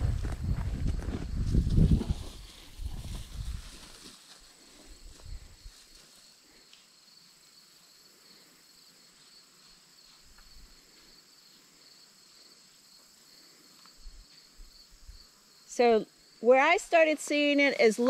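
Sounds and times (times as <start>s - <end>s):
soft low thumps: 0.0s - 3.5s
insects chirping: 0.0s - 18.0s.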